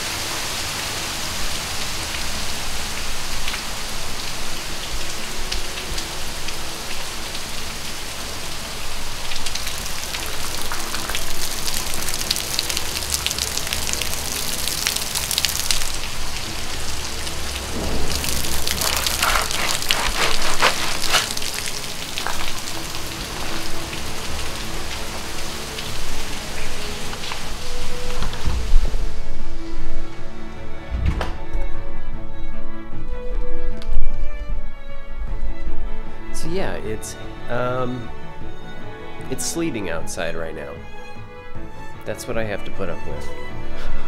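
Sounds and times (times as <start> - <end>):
sleet falling on leaves: 17.6 - 22.7.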